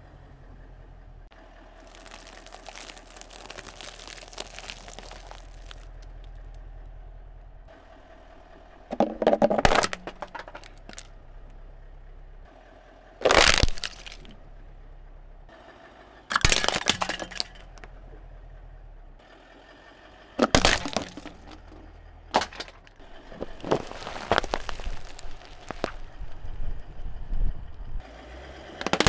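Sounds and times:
soft crackling and crunching: 0:01.6 - 0:07.5, 0:09.6 - 0:11.6, 0:13.2 - 0:14.5, 0:20.6 - 0:26.6
plastic container crunching under tyre: 0:01.7 - 0:06.5, 0:08.9 - 0:11.1, 0:13.2 - 0:14.4, 0:16.3 - 0:17.9, 0:20.4 - 0:26.2, 0:28.8 - 0:29.0.

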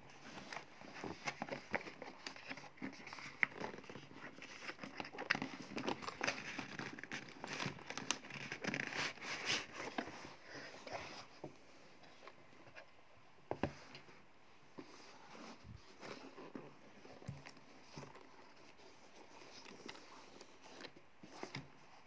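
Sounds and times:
cardboard rustling and scraping: 0:00.1 - 0:12.9, 0:13.5 - 0:22.0.

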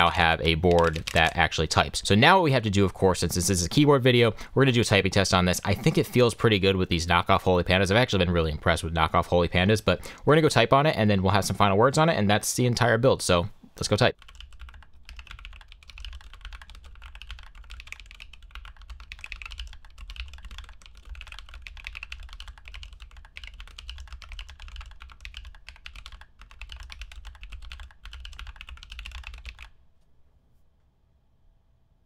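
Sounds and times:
fast typing on mechanical keyboard: 0:00.0 - 0:01.6, 0:14.2 - 0:29.7.

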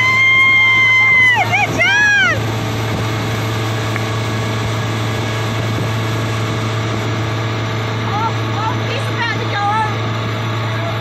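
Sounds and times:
churning wake water: 0:00.0 - 0:11.0
outboard motor droning: 0:00.0 - 0:11.0.

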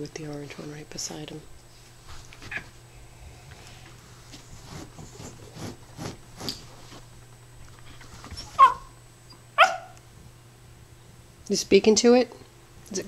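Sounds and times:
dog yipping: 0:08.4 - 0:09.0, 0:09.6 - 0:10.0.

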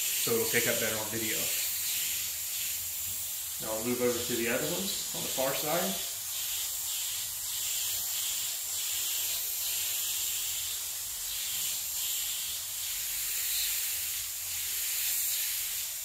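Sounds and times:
spray gun hissing: 0:00.0 - 0:16.0.

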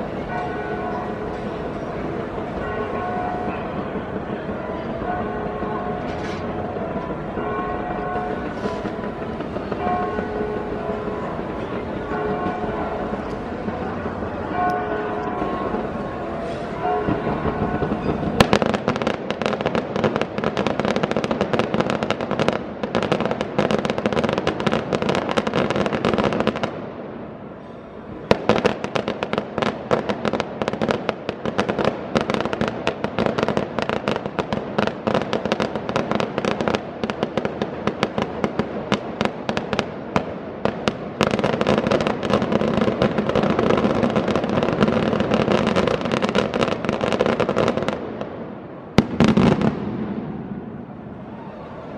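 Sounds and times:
loud firework bang: 0:00.0 - 0:14.4
fireworks crackling and popping: 0:00.0 - 0:27.4, 0:28.1 - 0:51.0.

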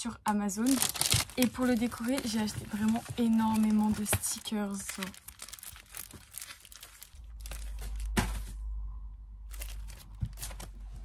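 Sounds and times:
stickers crinkling and tearing: 0:00.6 - 0:08.1, 0:09.5 - 0:10.8
low hum: 0:07.2 - 0:11.0.

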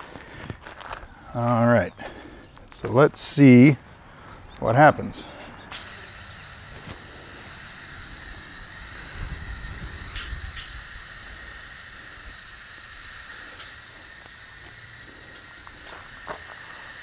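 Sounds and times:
hose nozzle spraying water: 0:05.7 - 0:17.0.

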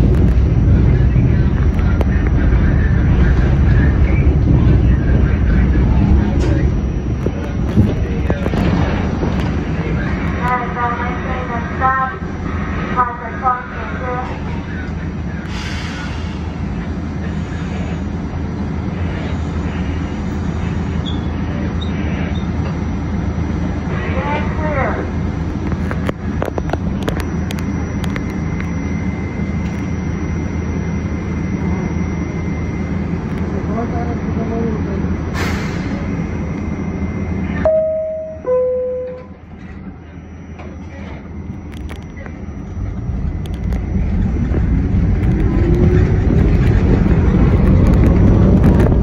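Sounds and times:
subway train rumble: 0:00.0 - 0:49.0
two-tone descending door chime: 0:37.6 - 0:39.5.

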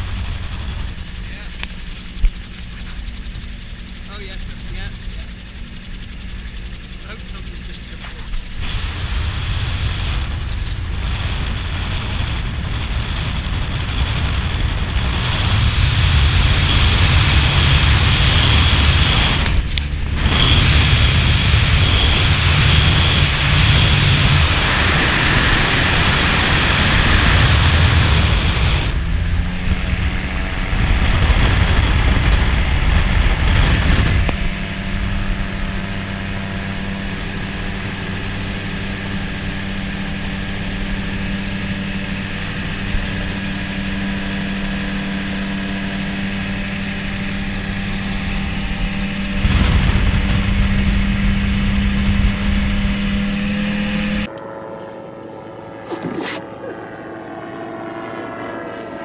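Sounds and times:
aircraft engine and propeller drone: 0:00.0 - 0:59.0
wind buffeting microphone: 0:07.9 - 0:45.6, 0:46.4 - 0:54.3.

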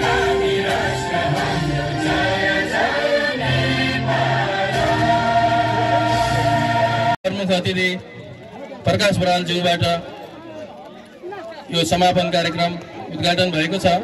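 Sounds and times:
choir singing: 0:00.0 - 0:07.2
steady bass: 0:00.0 - 0:07.2.

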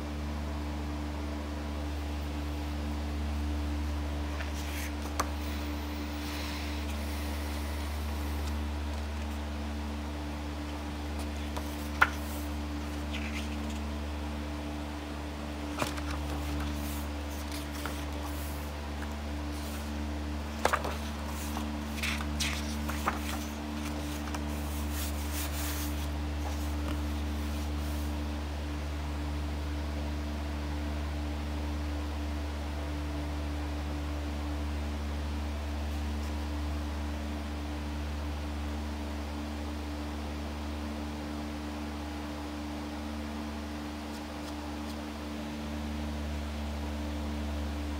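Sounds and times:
paper rustles: 0:04.3 - 0:09.4, 0:11.1 - 0:14.0, 0:15.6 - 0:28.2
sketchbook pages turning: 0:04.3 - 0:09.4, 0:10.7 - 0:14.0, 0:15.6 - 0:28.2.

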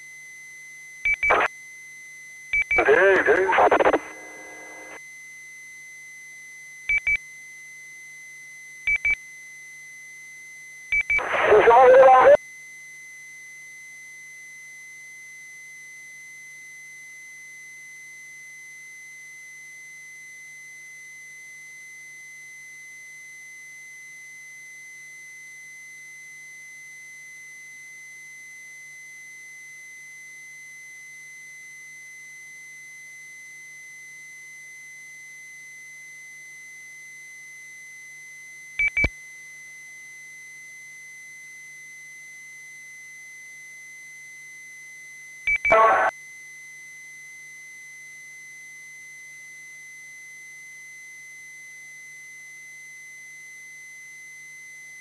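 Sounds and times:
high-pitched radio tone: 0:01.3 - 0:01.5, 0:02.8 - 0:05.0, 0:11.2 - 0:12.4, 0:45.6 - 0:46.1
radio clicks: 0:45.7 - 0:46.1.

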